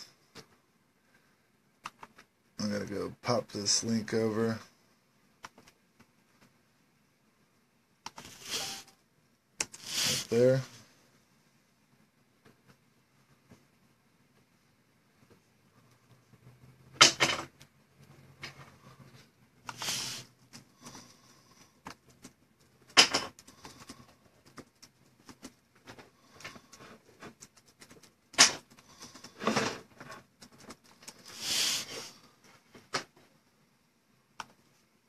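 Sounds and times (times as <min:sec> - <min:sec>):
short scrapes: 0:09.8 - 0:10.8
clicks taps and rustles: 0:21.6 - 0:31.3.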